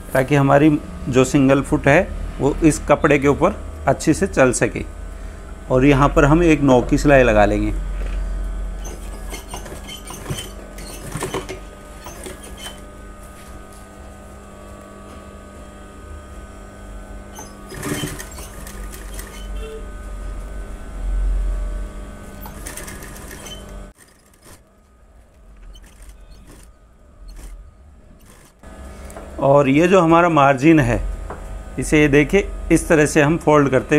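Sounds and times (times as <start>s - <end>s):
sewing machine running: 8.8s - 13.0s, 17.3s - 19.8s, 22.2s - 28.7s
handling noises: 8.8s - 13.9s, 17.4s - 19.8s, 22.3s - 29.3s.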